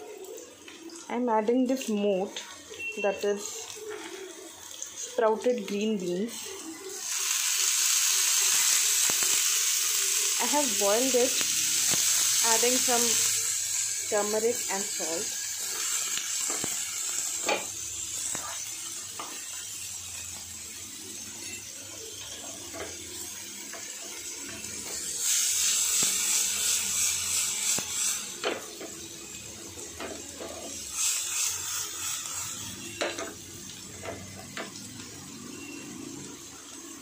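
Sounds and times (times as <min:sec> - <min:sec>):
beans and onion sizzling in a pan: 0:00.0 - 0:37.0
spatula stirring and scraping: 0:02.8 - 0:04.5.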